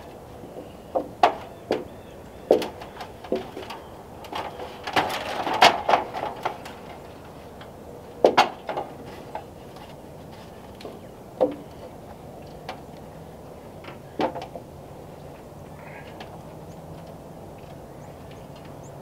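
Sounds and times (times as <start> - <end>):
wood knocking and clattering: 0.5 - 1.9, 2.5 - 12.8, 13.8 - 14.7.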